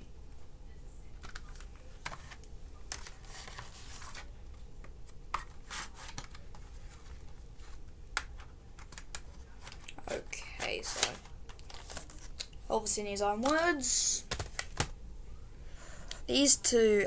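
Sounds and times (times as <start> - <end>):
low steady hum: 0.0 - 17.0
plastic cases clicking: 14.3 - 14.9.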